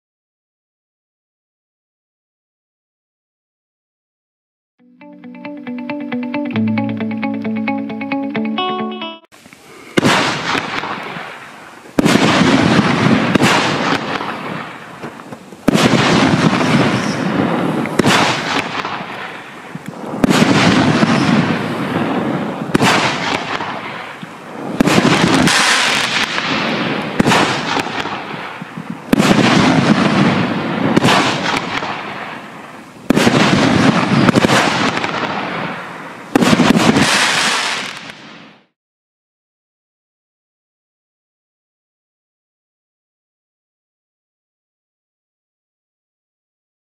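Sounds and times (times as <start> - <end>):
crackling hiss of firework effects: 9.3 - 38.7
firework shot launching: 9.9 - 32.4, 33.1 - 38.7.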